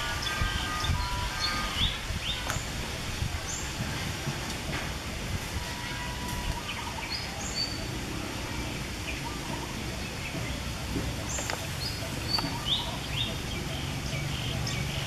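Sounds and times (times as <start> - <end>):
low background noise: 0.0 - 15.0
high bird chirps: 9.0 - 15.0.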